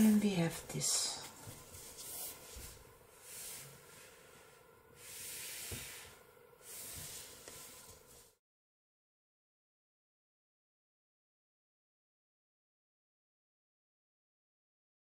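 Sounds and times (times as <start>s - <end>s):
faint hissing: 0.0s - 8.4s.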